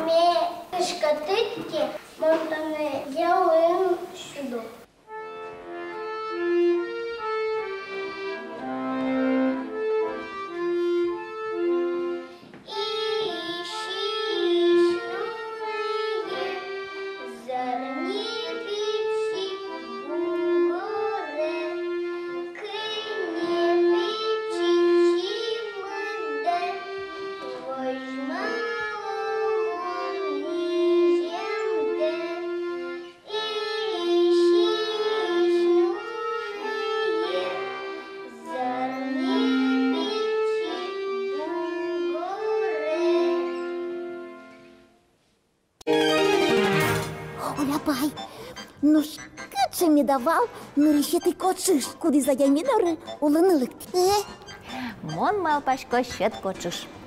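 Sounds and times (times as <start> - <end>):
child singing a lullaby: 0.0 - 4.8, 12.6 - 43.9
instrumental accompaniment: 0.0 - 57.0.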